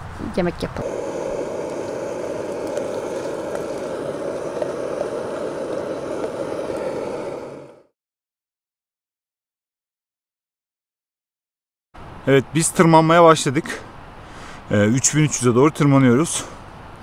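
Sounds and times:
camping stove burning: 0.8s - 7.9s.

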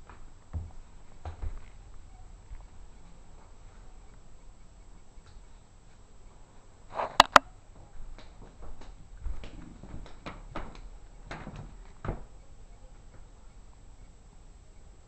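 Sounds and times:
sharp clicks: 7.0s - 7.5s.

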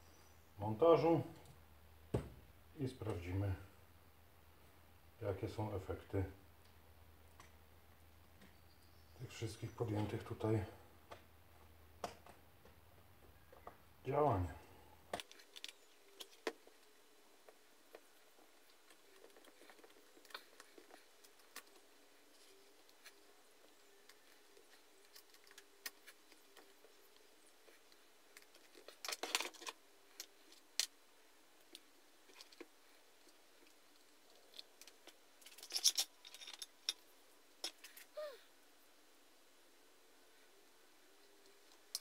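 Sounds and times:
metal parts clattering: 35.4s - 36.7s.

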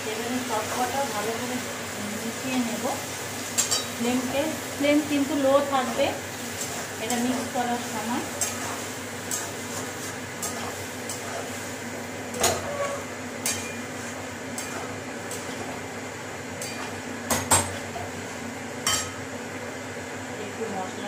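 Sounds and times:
metal spatula scraping a pan: 5.6s - 11.7s, 12.3s - 15.7s.

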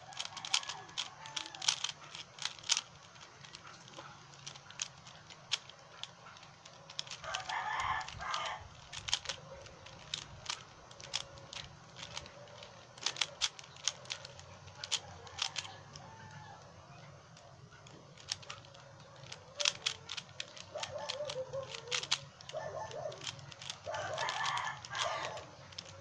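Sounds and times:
rooster crowing: 0.0s - 1.9s, 7.2s - 8.7s, 15.0s - 16.7s, 23.8s - 25.6s
puzzle cube clicking: 0.0s - 26.0s.

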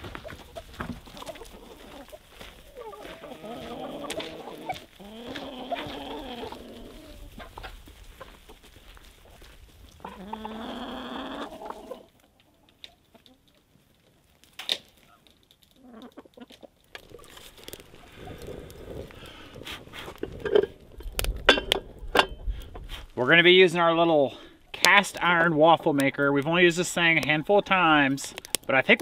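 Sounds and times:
chickens clucking: 0.0s - 14.2s, 15.7s - 21.0s
long drawn-out chicken call: 0.3s - 8.4s, 10.0s - 12.2s.

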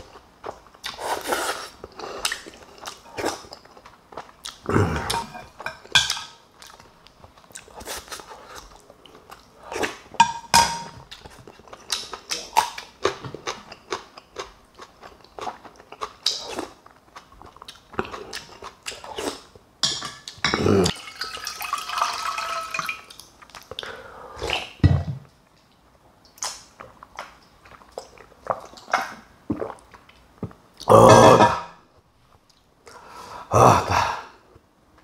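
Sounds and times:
person chewing: 0.1s - 10.2s, 11.1s - 19.6s.

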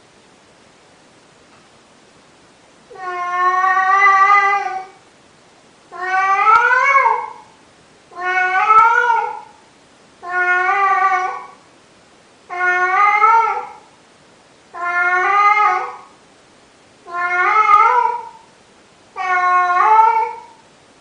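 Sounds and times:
cat yowling: 2.9s - 5.0s, 5.9s - 7.5s, 8.1s - 9.6s, 10.2s - 11.6s, 12.5s - 13.9s, 14.7s - 16.1s, 17.0s - 18.5s, 19.1s - 20.6s.

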